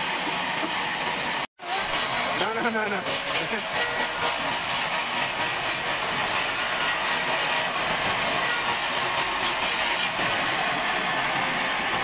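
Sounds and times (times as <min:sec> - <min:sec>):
band saw cutting through log: 0:00.6 - 0:12.0.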